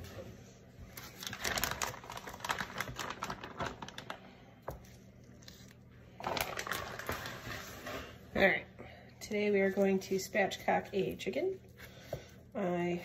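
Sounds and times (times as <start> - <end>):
plastic bag crinkling: 0.9 - 7.8.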